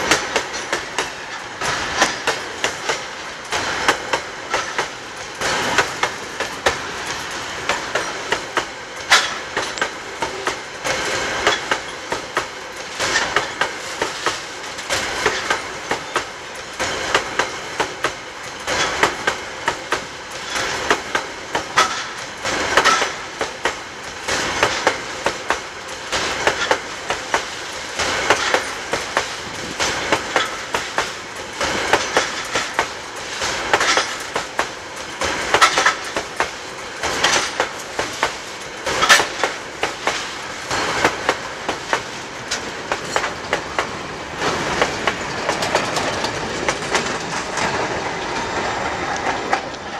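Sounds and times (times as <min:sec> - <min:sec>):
steady train rumble: 0:00.0 - 0:49.9
train wheels clattering over rail joints: 0:00.0 - 0:49.9.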